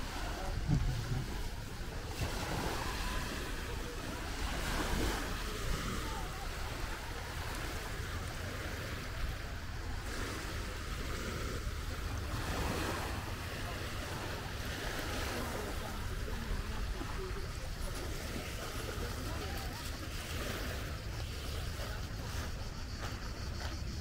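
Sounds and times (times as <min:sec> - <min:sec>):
wind on microphone: 0:00.0 - 0:14.9
faint distant voices: 0:00.0 - 0:24.0
small waves washing on shore: 0:00.0 - 0:24.0.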